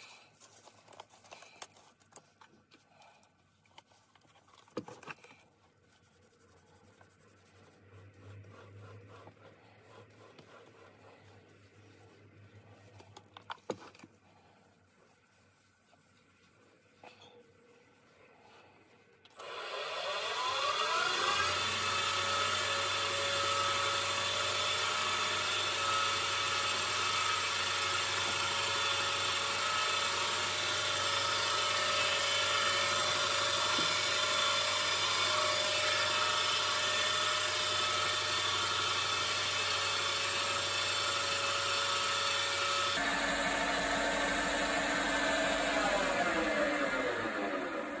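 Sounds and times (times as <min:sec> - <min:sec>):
wood lathe motor whine: 0:19.4 - 0:48.0.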